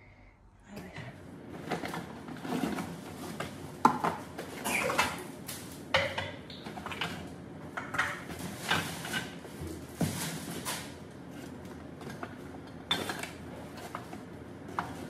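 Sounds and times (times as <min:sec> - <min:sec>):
dishes and utensils clattering: 0:05.9 - 0:09.4, 0:12.9 - 0:14.2.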